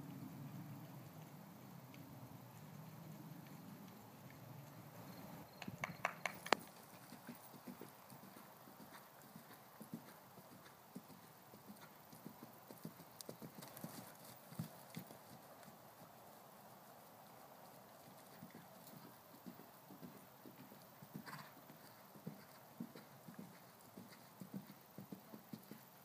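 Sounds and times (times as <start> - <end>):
faint hoofbeats on grass: 0.0 - 26.0
sharp clicks: 5.5 - 6.7.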